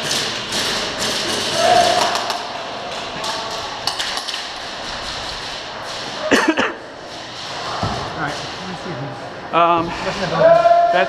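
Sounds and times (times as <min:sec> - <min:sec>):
indoor hall din: 0:00.0 - 0:11.0
cough: 0:06.3 - 0:06.8.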